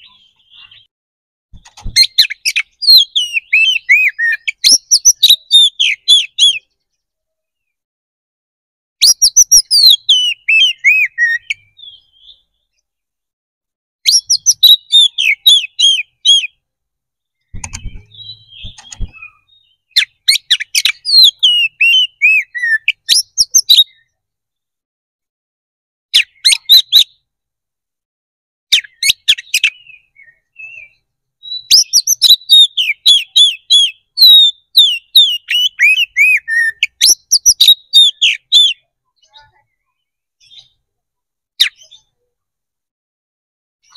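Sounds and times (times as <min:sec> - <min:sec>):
bird singing whistled notes: 0:00.0 - 0:00.9, 0:01.8 - 0:07.8, 0:09.0 - 0:12.8, 0:14.0 - 0:16.6, 0:17.2 - 0:24.2, 0:26.1 - 0:27.2, 0:28.7 - 0:40.8.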